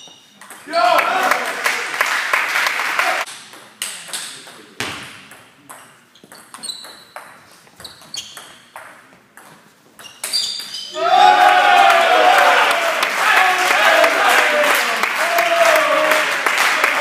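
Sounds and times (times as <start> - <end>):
burst of shouting: 10.9 - 16.4.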